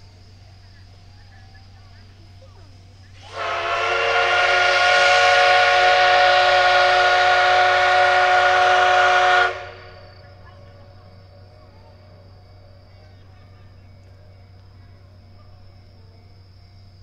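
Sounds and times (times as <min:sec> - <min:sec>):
steam locomotive whistle blast: 0:03.2 - 0:10.2.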